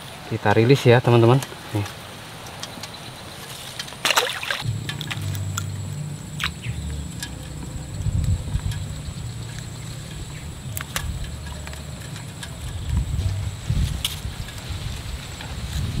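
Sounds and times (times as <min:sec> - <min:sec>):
fish splashing into water: 0:04.0 - 0:05.7
steady low rumble: 0:04.6 - 0:16.0.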